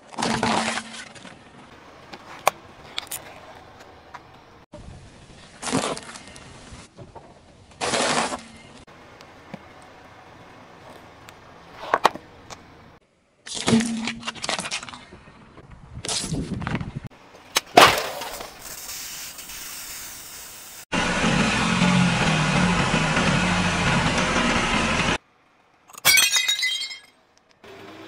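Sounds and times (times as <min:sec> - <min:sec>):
spraying soda hiss: 0:18.6 - 0:20.8.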